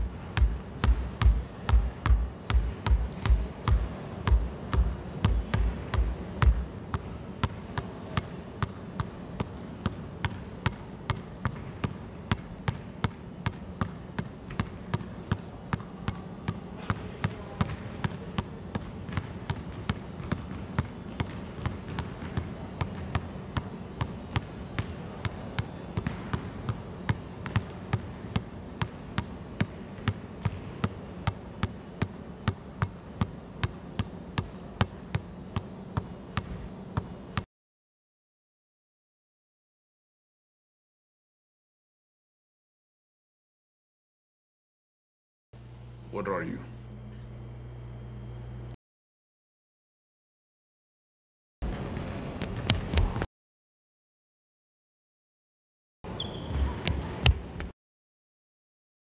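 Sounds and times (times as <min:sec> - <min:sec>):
basketball bouncing on wood floor: 0:00.0 - 0:18.2, 0:18.8 - 0:25.0, 0:26.0 - 0:37.1, 0:51.9 - 0:53.2.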